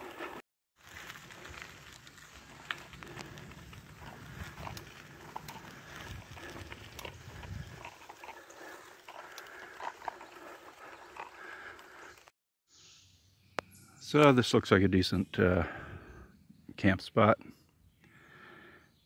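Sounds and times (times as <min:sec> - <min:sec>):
bicycle tyres crunching on gravel: 0:00.0 - 0:12.3.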